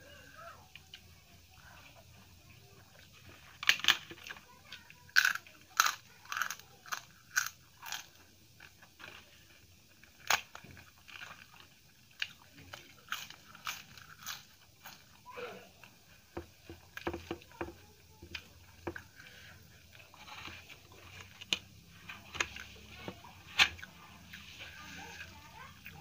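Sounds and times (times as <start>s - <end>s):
quiet chewing of food: 0.0s - 26.0s
crunching on crisp papadam: 5.0s - 9.2s, 9.8s - 15.2s.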